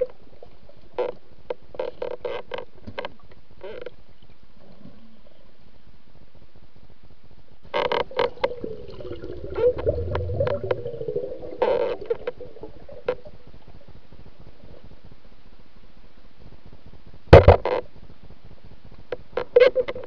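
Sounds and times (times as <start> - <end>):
underwater clicks and knocks: 7.8 - 13.9, 17.4 - 17.8
wavering hum: 8.0 - 13.9
low rumble: 8.3 - 15.4.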